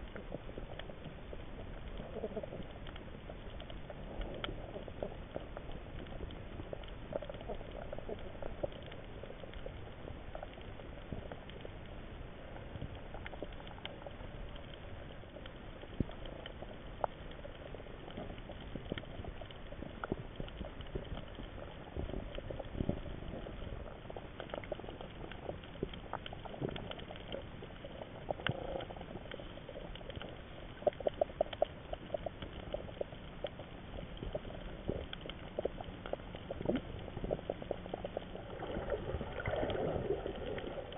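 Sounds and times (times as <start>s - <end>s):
underwater crackling: 0.0s - 40.9s
sharp clicks and pops: 12.8s - 40.9s.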